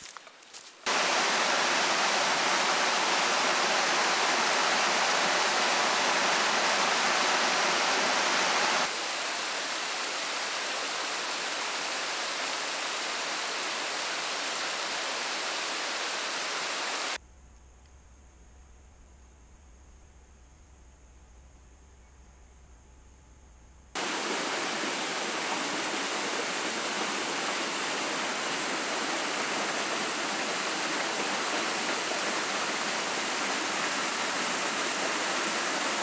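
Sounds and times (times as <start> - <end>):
running water rushing: 0.8 - 17.2, 24.0 - 36.0
faint low hum: 17.2 - 24.0.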